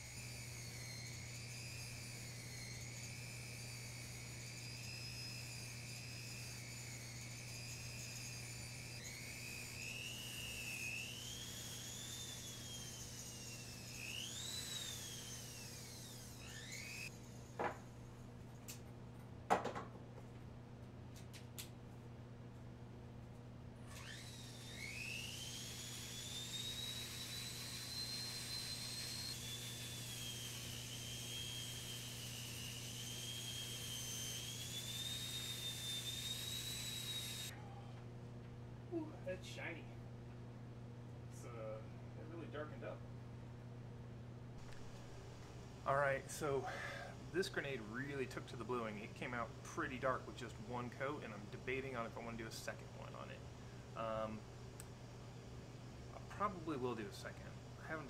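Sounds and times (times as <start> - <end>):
rotary tool whining: 0.0 - 18.2, 23.8 - 37.6.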